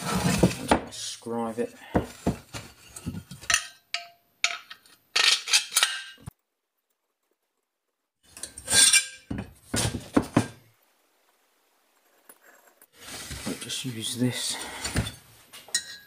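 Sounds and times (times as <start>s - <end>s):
metal parts clinking and scraping: 2.8s - 6.3s, 8.4s - 9.3s.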